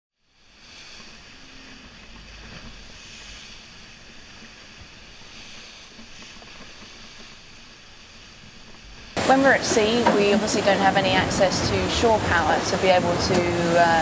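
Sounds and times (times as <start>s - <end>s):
wind: 0.2s - 14.0s
water rushing past hull: 0.4s - 14.0s.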